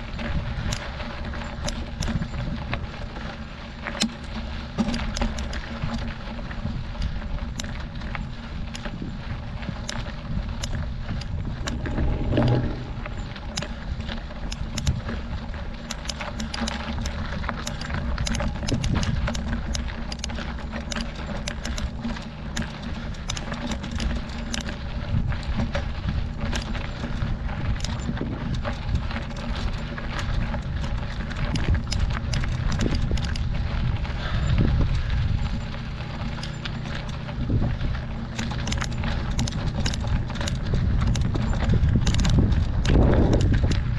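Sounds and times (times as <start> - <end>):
bike and stones rattling: 0.0 - 43.9
steady low rumble: 8.3 - 15.8, 24.7 - 43.9.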